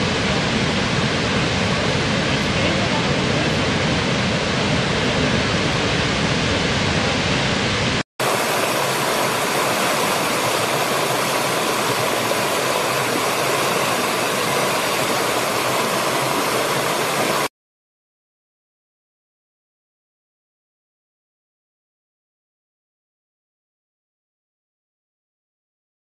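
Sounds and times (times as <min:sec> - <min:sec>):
hissy waterfall: 0:00.0 - 0:17.5
waterfall roaring: 0:00.0 - 0:17.5.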